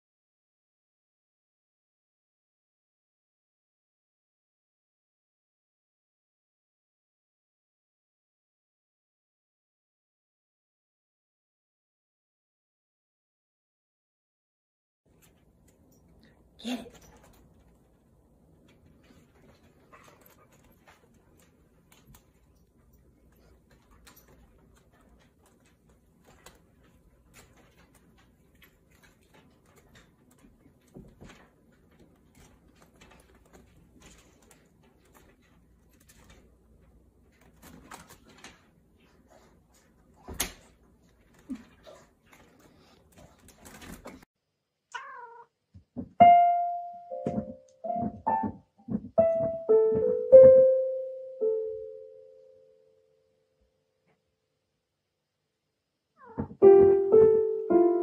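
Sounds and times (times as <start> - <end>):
cat meowing: 44.9 - 45.6, 56.2 - 56.6
paw thudding on keys: 46.0 - 50.9, 56.3 - 58.0
electronic keyboard notes: 46.2 - 52.4, 56.6 - 58.0.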